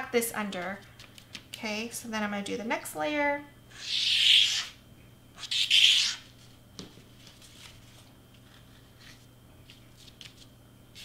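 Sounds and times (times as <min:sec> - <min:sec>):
paper rustling: 0:06.0 - 0:11.0.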